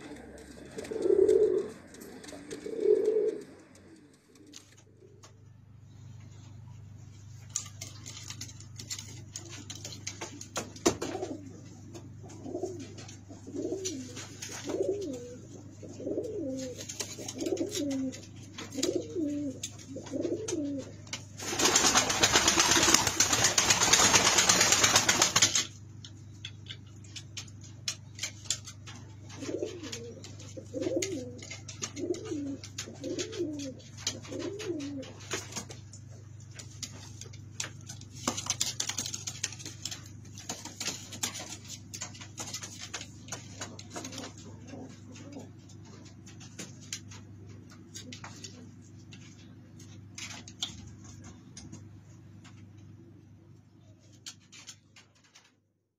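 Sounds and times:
pigeon cooing: 0:00.0 - 0:05.4, 0:09.3 - 0:23.2, 0:28.9 - 0:35.6, 0:43.4 - 0:48.8.

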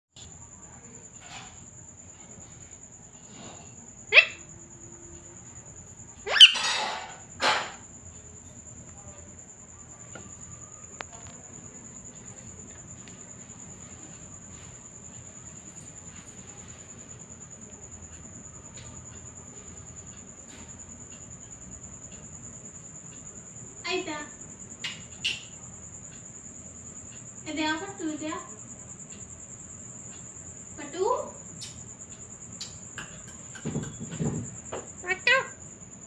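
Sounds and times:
faint chirps: 0:00.2 - 0:07.0, 0:08.0 - 0:35.7
parakeet squawking: 0:04.1 - 0:04.4, 0:06.2 - 0:07.0
parakeet rasping screech: 0:06.2 - 0:07.7.

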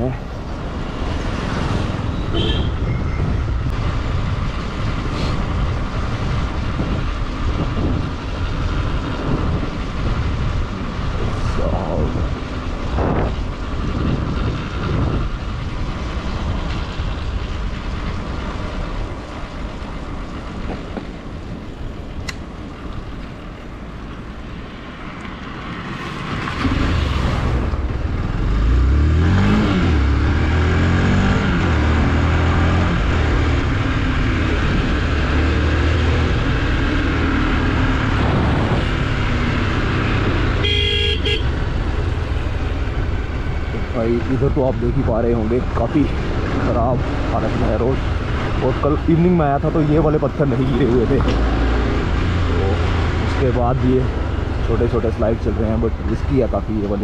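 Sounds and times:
wind rushing over microphone: 0:00.0 - 0:18.1, 0:25.6 - 0:40.6.

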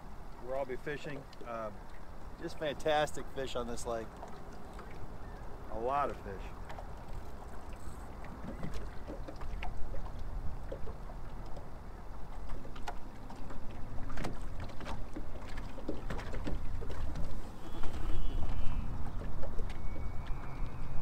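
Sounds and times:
waves lapping against boat hull: 0:00.0 - 0:21.0
wind rumble on microphone: 0:06.9 - 0:21.0.

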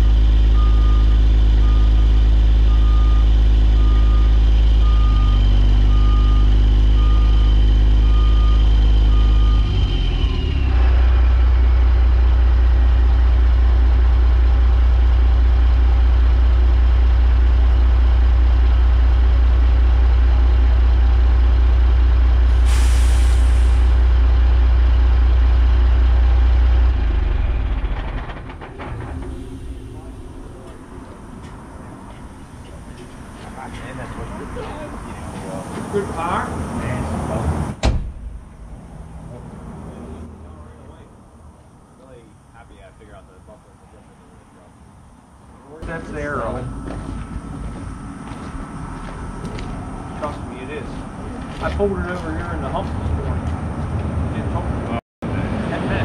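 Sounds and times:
diesel truck engine running: 0:00.0 - 0:56.0
reverse alarm beeping: 0:00.5 - 0:02.0, 0:02.7 - 0:10.7
air brake hiss: 0:22.5 - 0:24.0.

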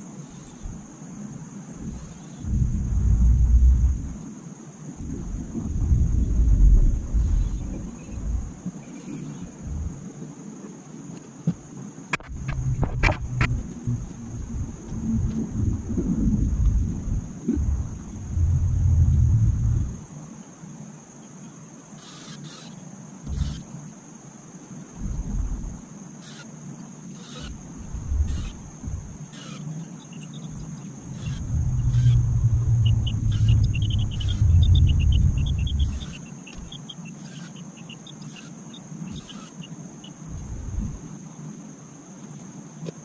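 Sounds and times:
cordless drill driving screw: 0:22.0 - 0:23.6, 0:27.2 - 0:27.6, 0:28.3 - 0:28.6, 0:29.3 - 0:29.6, 0:31.1 - 0:32.2, 0:35.8 - 0:36.2, 0:37.2 - 0:37.6, 0:38.2 - 0:39.6
fast ticking: 0:31.1 - 0:39.6.

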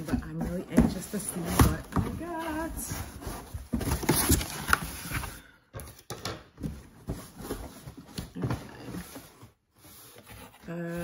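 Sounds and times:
bag and packages rustling: 0:00.0 - 0:05.5.

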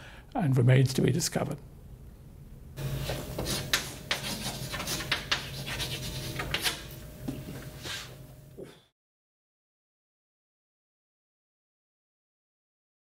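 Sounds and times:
chalk scratching on blackboard: 0:02.8 - 0:07.0.

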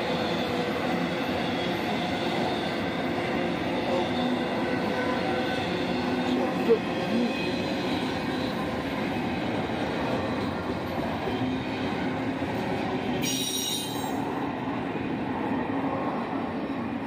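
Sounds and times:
freight train wheels rumbling: 0:00.0 - 0:17.0
high-pitched wheel squeal: 0:13.2 - 0:14.2.

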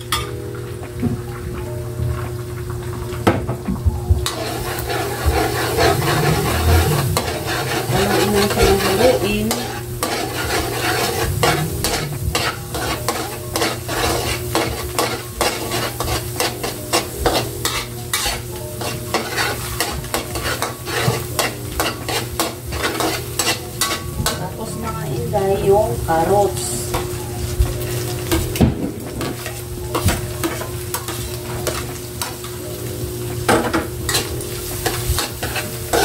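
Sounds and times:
eggs sizzling in a pan: 0:00.0 - 0:36.0
metal spatula scraping a pan: 0:04.2 - 0:24.8, 0:34.1 - 0:36.0.

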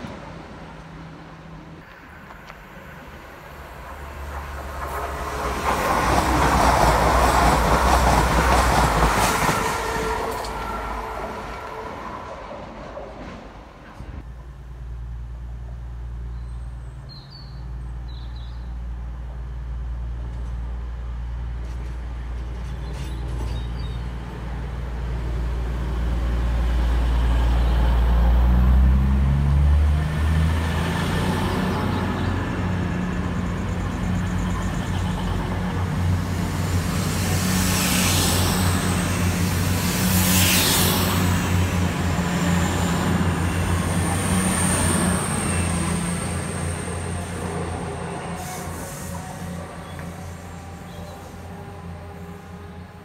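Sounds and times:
train wheels and air rushing: 0:00.0 - 0:14.3, 0:32.4 - 0:53.0
diesel train engine drone: 0:00.0 - 0:53.0
hiss: 0:36.7 - 0:41.5, 0:48.4 - 0:51.4.

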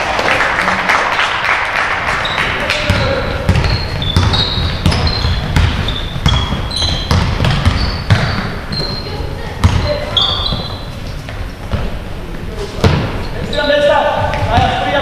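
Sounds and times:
voices in a hall: 0:00.0 - 0:04.6, 0:08.3 - 0:15.0
sneakers squeaking on court: 0:02.2 - 0:12.0, 0:12.7 - 0:15.0
basketball dribbling thuds: 0:02.9 - 0:09.0, 0:09.6 - 0:12.0, 0:12.8 - 0:13.6, 0:14.2 - 0:15.0.

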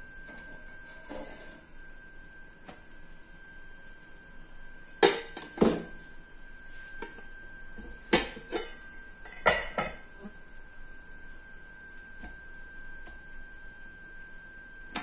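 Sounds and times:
faint high whine: 0:00.0 - 0:15.0
utensils and cookware clinking: 0:08.1 - 0:10.0.

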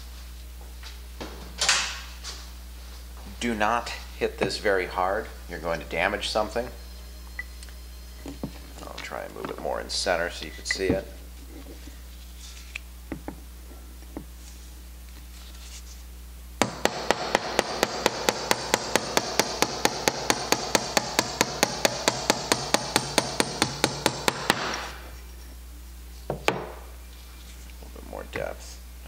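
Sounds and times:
hammer tapping brass rod: 0:16.6 - 0:24.9.

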